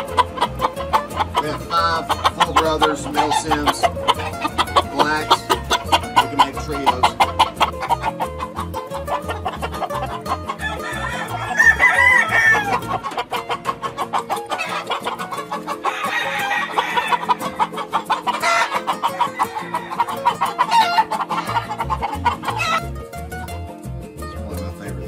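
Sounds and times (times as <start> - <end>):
rooster crowing: 9.0 - 22.8
background music with beat: 18.4 - 25.0.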